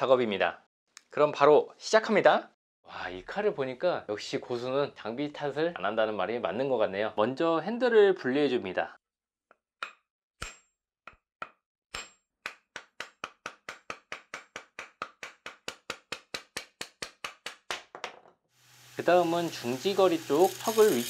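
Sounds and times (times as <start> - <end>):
hammer tapping wooden handle: 9.8 - 18.2.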